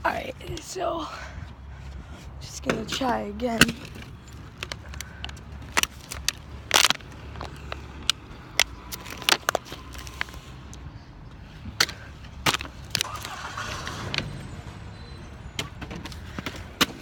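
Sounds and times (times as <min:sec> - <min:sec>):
rustling handling noise: 0:02.7 - 0:10.6
plastic bottle crackling: 0:03.6 - 0:10.4.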